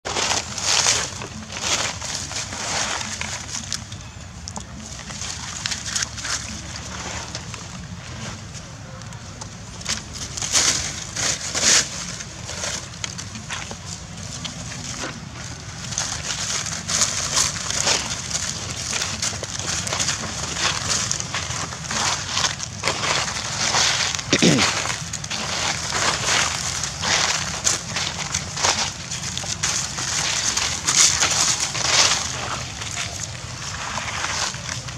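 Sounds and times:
dry leaves crackling and rustling: 0.0s - 34.9s.

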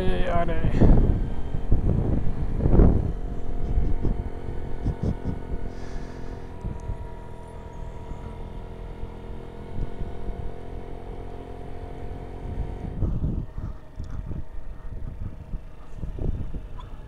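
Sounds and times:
gusty low rumble: 0.0s - 8.6s, 12.1s - 17.0s
scooter engine running: 0.0s - 17.0s.

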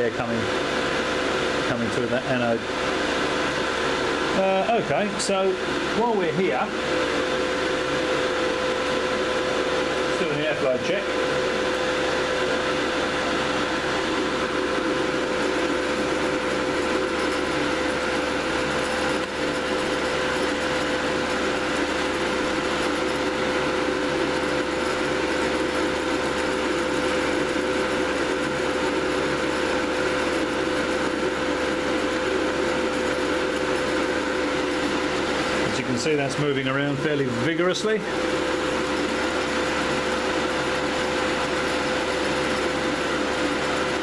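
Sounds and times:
cooling fans whirring: 0.0s - 44.0s.

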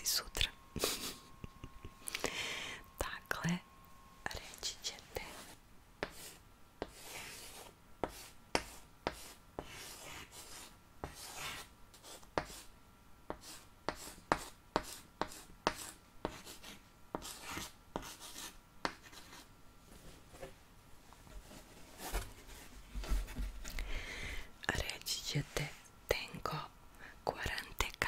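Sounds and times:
pen scratching on paper: 5.2s - 12.7s, 13.3s - 19.5s.

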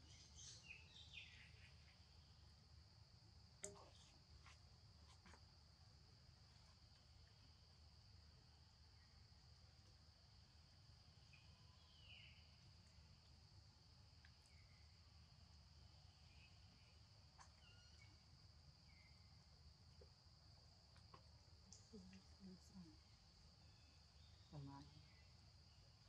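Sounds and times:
faint chirps: 0.0s - 2.5s, 11.2s - 13.3s, 14.2s - 19.4s, 21.7s - 26.0s.

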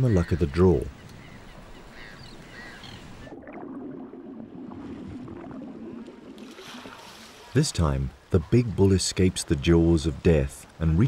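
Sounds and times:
faint gull calls: 0.0s - 3.3s
muffled water sloshing: 1.3s - 8.6s.

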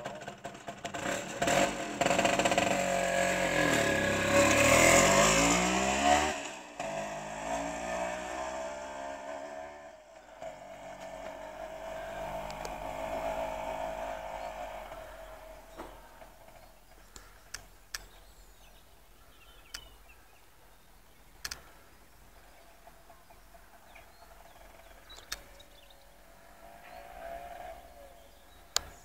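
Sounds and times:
scooter engine revving: 0.0s - 18.0s, 22.5s - 29.0s.

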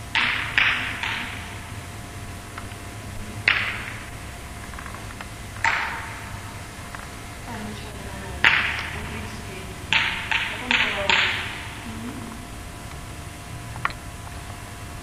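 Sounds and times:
tennis racket striking ball: 0.0s - 1.9s, 2.6s - 12.2s.

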